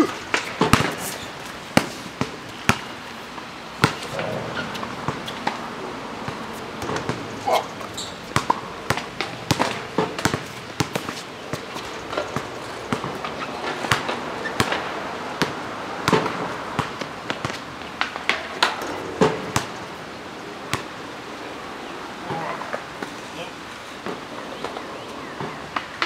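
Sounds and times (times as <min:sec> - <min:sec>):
basketball bouncing on asphalt: 0:00.3 - 0:03.0, 0:03.8 - 0:19.8.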